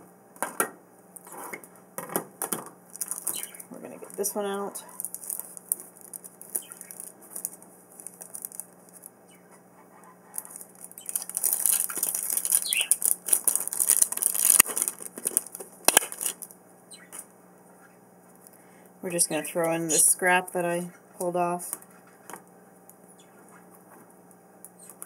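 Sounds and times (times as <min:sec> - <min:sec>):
plastic and card packaging crinkling: 0:02.5 - 0:09.4, 0:10.3 - 0:17.3.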